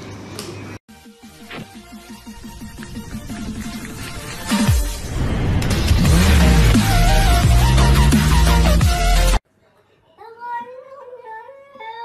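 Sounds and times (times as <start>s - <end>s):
deep bass note sliding down: 5.0s - 9.1s.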